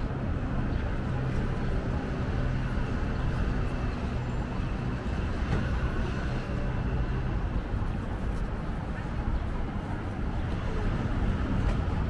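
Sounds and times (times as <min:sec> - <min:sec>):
traffic rumble: 0:00.0 - 0:12.0.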